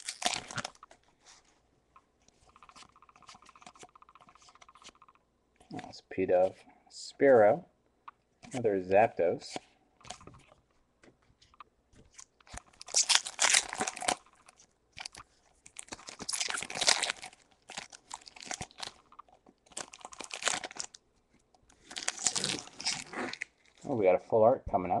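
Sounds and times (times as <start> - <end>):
foil wrapper crinkling and tearing: 0.0 - 1.0, 12.1 - 21.0, 21.7 - 23.8.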